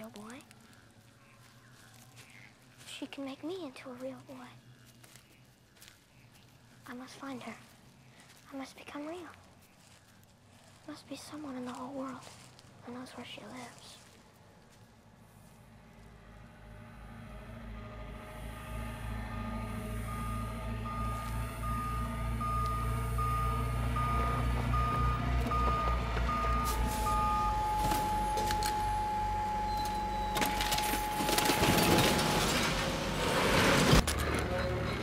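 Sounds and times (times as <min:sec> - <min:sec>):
truck engine rumbling: 0:14.2 - 0:35.0
long held tone: 0:15.8 - 0:32.9
reversing alarm beeps: 0:17.4 - 0:32.8.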